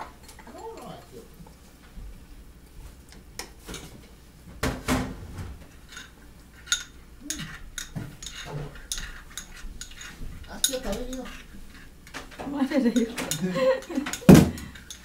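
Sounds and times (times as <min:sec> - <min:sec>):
utensil clinking ceramic bowl: 0:05.8 - 0:15.0.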